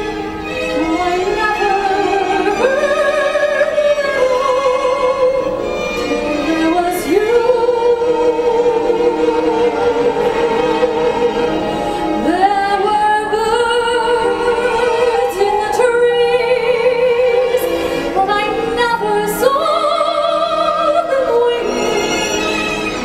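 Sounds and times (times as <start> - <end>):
instrumental accompaniment: 0.0 - 23.0
person singing with vibrato: 6.3 - 23.0.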